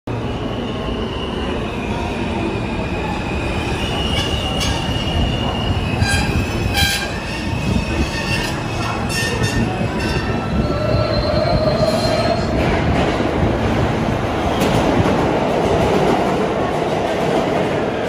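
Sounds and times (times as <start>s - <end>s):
train wheels rumbling on rail: 0.1s - 18.0s
high wheel squeal: 2.5s - 12.5s.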